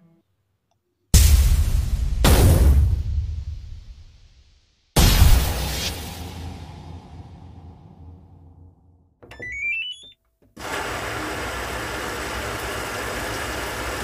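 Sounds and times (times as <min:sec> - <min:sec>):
deep rumble: 0:05.3 - 0:09.0.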